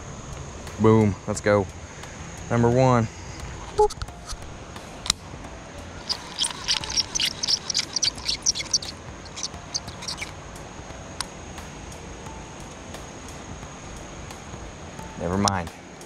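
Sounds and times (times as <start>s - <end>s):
fishing reel clicking: 6.0s - 10.3s.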